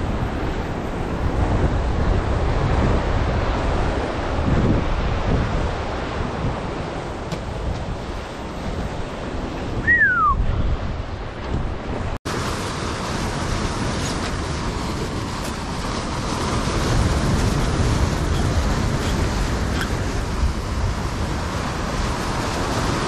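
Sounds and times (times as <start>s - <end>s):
ocean surf breaking on rocks: 0.0s - 23.0s
short falling whistle: 9.8s - 10.4s.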